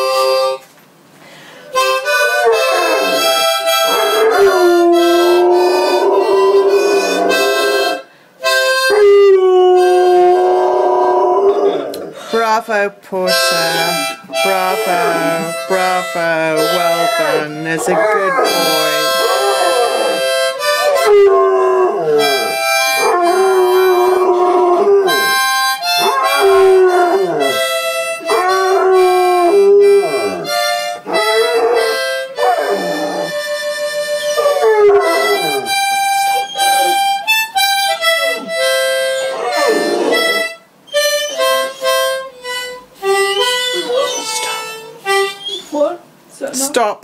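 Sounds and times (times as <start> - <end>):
harmonica playing slow tune: 0.0 - 0.7, 1.3 - 46.0
dog howling: 2.1 - 8.0, 8.8 - 12.3, 17.1 - 33.4, 34.3 - 35.8, 36.4 - 37.3, 37.9 - 40.6, 43.3 - 44.7.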